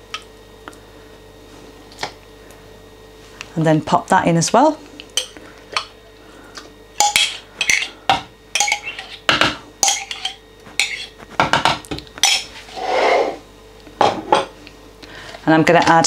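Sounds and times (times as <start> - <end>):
metal spoon scraping ceramic mug: 8.6 - 9.2, 9.9 - 11.1.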